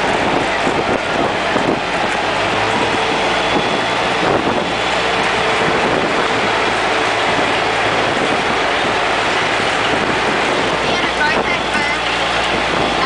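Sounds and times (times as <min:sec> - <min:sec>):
tram engine and tyre noise: 0:00.0 - 0:13.0.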